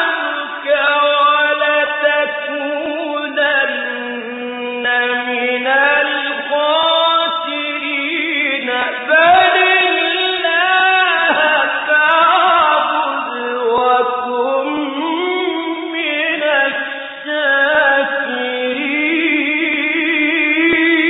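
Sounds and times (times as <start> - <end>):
man reciting melodically: 0.0 - 21.0
man breathing: 16.7 - 17.3.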